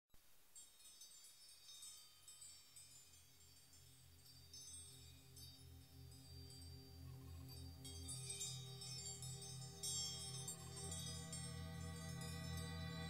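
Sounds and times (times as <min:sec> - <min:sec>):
tinkling wind chimes: 0:00.5 - 0:13.0.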